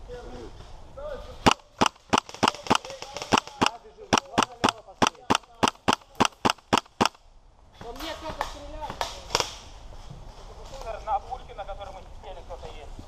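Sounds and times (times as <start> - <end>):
airsoft rifle firing: 1.4 - 7.2.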